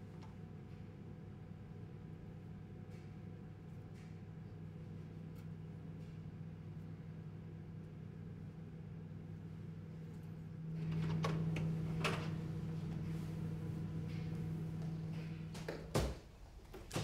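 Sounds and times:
low droning hum: 0:04.5 - 0:15.9.

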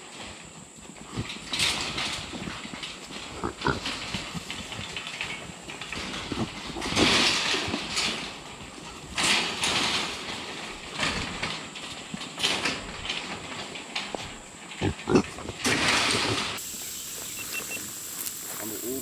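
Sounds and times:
hogs calling: 0:16.6 - 0:19.0.

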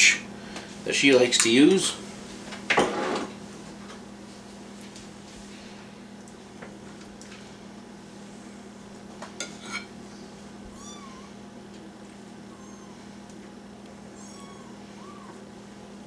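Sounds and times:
steady hum: 0:00.0 - 0:16.0
knife and spoon scraping plate: 0:09.4 - 0:09.9
short wavering high-pitched cry: 0:10.7 - 0:11.4, 0:14.2 - 0:15.4.

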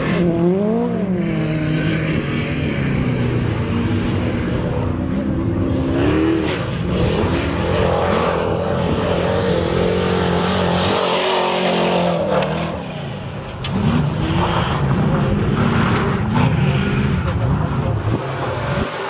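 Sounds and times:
race truck engine revving: 0:00.0 - 0:19.0.

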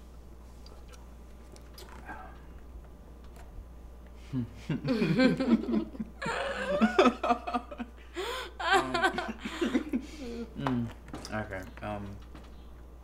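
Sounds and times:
man and woman laughing: 0:04.6 - 0:10.5.

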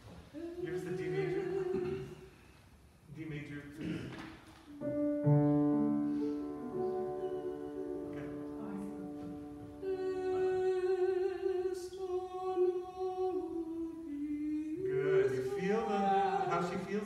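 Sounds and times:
piano chord: 0:04.8 - 0:10.4
voices singing a held note: 0:06.1 - 0:17.0.

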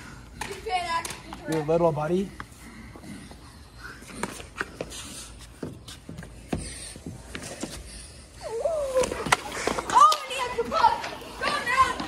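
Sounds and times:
hockey skates and sticks on ice: 0:08.7 - 0:12.0
child's voice: 0:09.9 - 0:12.0.

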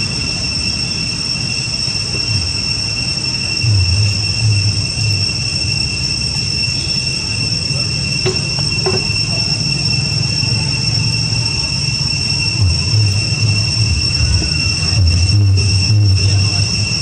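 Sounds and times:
insects singing: 0:00.0 - 0:17.0
low rumble: 0:03.6 - 0:05.9, 0:12.6 - 0:17.0.

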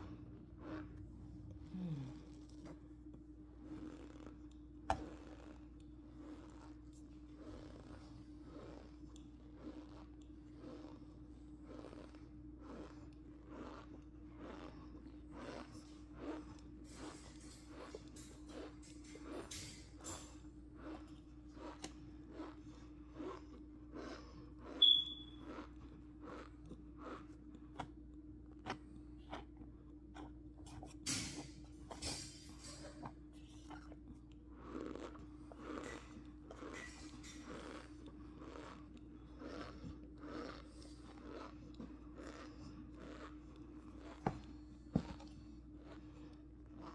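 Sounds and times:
spoon crunching cornstarch: 0:00.1 - 0:46.9
high squeak: 0:24.8 - 0:25.4.

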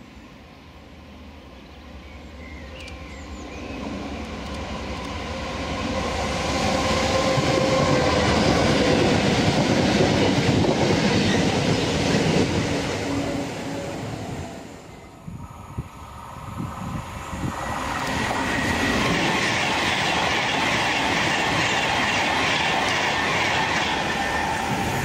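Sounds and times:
train wheel clatter: 0:18.0 - 0:25.0.

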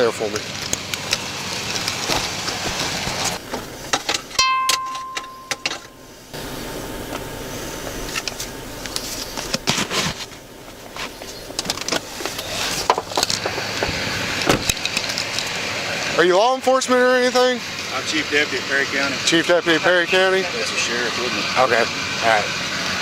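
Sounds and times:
rustling of handling: 0:07.8 - 0:13.8.

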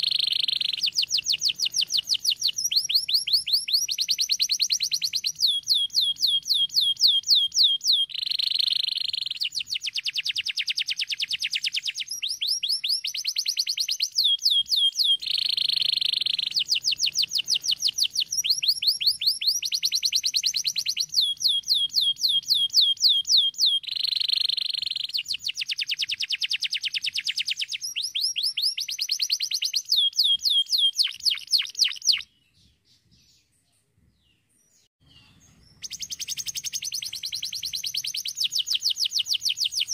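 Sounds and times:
canary singing trills: 0:00.0 - 0:33.5, 0:34.3 - 0:39.9.

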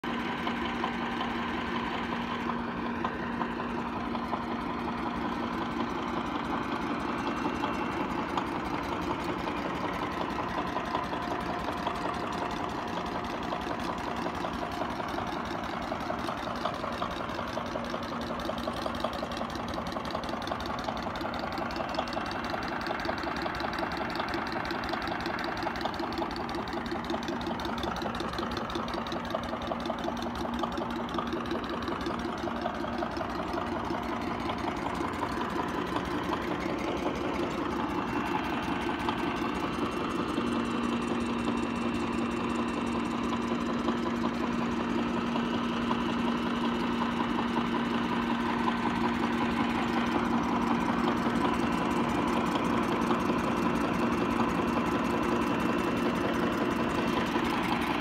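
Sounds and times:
diesel engine knocking at idle: 0:00.0 - 0:58.0.

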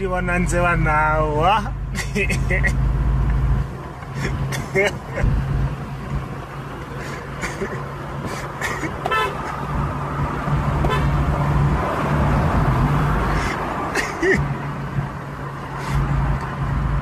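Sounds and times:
car engine drone: 0:00.0 - 0:17.0
road noise: 0:00.0 - 0:17.0.

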